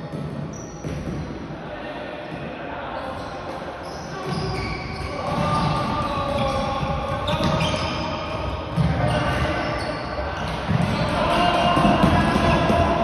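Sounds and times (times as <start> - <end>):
shoes squeaking on sports floor: 0.0 - 1.3, 3.0 - 11.3
players calling out: 3.0 - 13.0.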